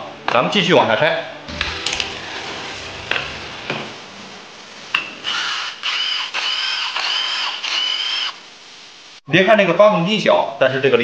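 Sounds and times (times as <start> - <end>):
power driver whining: 5.3 - 8.4.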